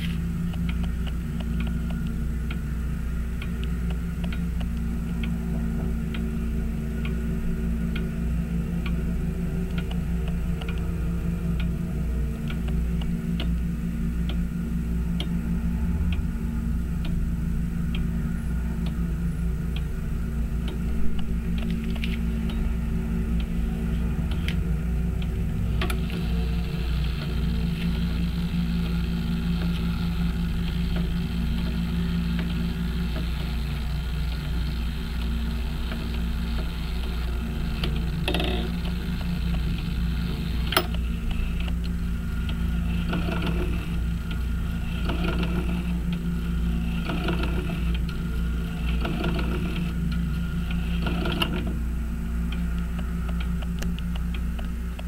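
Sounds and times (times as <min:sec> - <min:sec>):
low hum: 0:00.0 - 0:55.0
clock gears whirring and clattering: 0:18.8 - 0:55.0.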